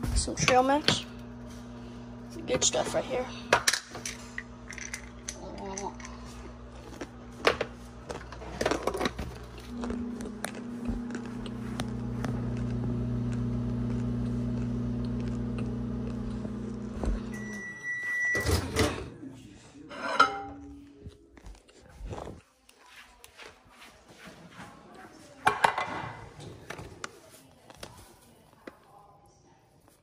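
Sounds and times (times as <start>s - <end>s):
microwave humming: 0.0s - 19.3s
microwave long beep: 17.2s - 19.0s.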